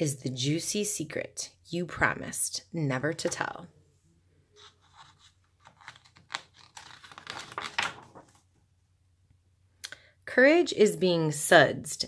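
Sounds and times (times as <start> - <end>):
book page turning: 4.6 - 8.5.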